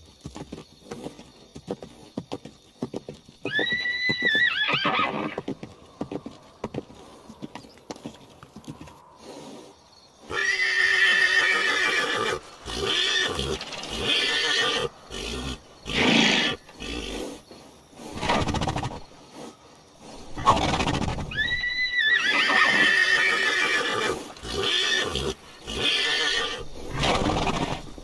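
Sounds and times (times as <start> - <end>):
hoofbeats: 0.0 - 28.0
horse whinnying: 3.4 - 5.6, 10.3 - 17.3, 18.1 - 19.0, 20.3 - 28.0
horses neighing loudly: 3.5 - 5.6, 10.3 - 17.4, 20.2 - 28.0.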